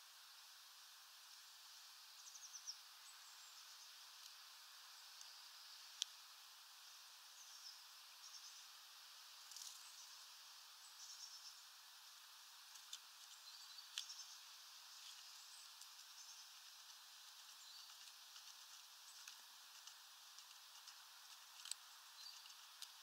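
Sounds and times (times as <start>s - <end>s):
steady hiss: 0.0s - 23.0s
songbird chirps: 1.6s - 23.0s.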